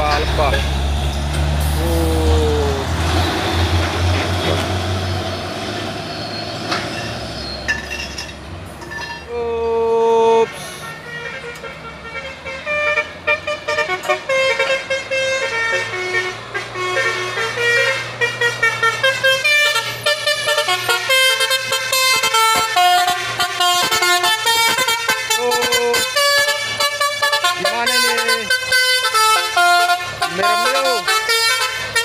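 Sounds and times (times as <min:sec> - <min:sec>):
heavy engine humming: 0:00.0 - 0:32.0
musical multi-tone vehicle horn: 0:10.4 - 0:32.0.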